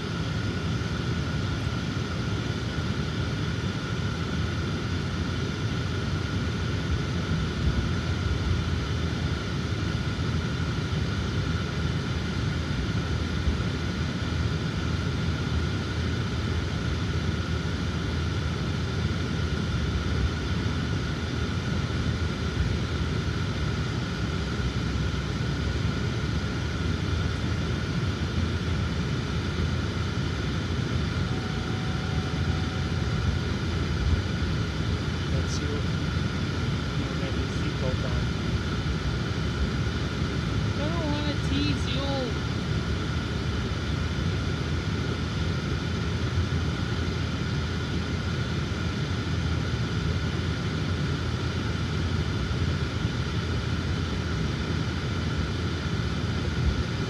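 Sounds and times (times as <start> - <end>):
road and engine rumble: 0.0 - 57.0
thin high whine: 27.4 - 38.2.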